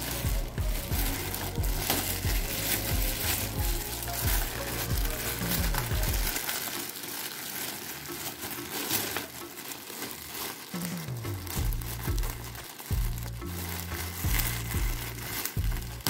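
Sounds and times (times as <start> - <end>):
background music with bass: 0.0 - 6.7, 10.6 - 16.0
plastic bag crinkling: 0.0 - 16.0.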